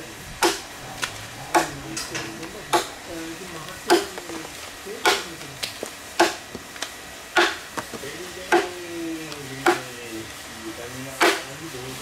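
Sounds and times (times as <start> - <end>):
hatchet chopping wooden log: 6.2 - 6.7, 7.4 - 7.6.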